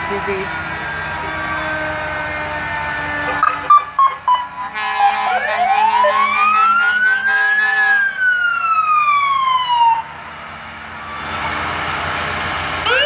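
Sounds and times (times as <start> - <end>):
siren wailing: 0.0 - 10.2, 12.8 - 13.0.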